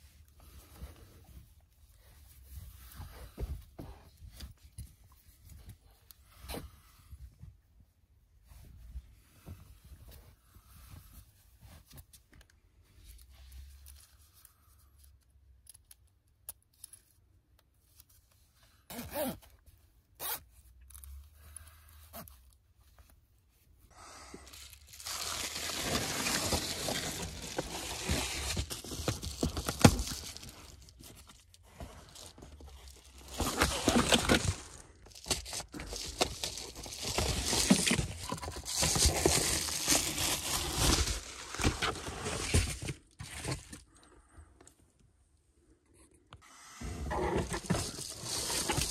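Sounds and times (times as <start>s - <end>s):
foil crinkling and rustling: 24.5s - 43.8s, 47.4s - 48.9s.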